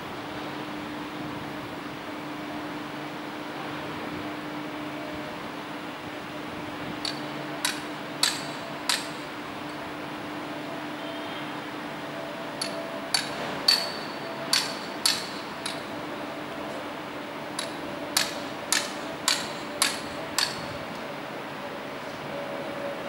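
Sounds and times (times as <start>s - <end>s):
hammer striking metal: 7.0s - 9.3s, 12.6s - 15.9s, 17.6s - 20.6s.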